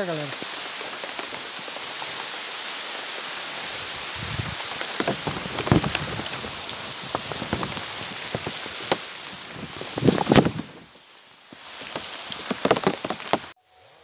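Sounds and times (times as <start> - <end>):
steady rain falling: 0.0 - 14.0
dull thumps: 4.2 - 10.7.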